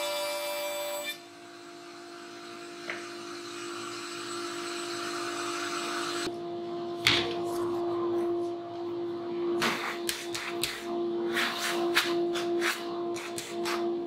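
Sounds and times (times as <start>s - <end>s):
dust extractor humming: 1.2s - 7.1s.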